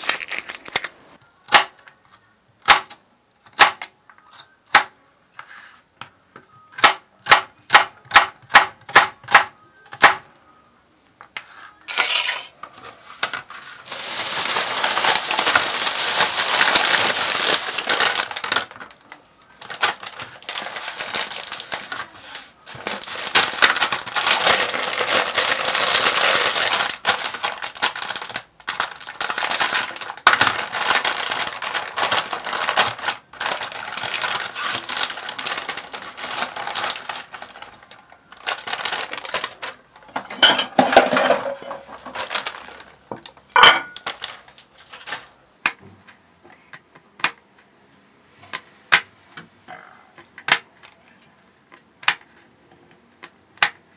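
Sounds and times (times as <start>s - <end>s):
plastic packet crinkling and tearing: 0.0s - 2.8s, 13.2s - 40.2s, 40.8s - 45.4s.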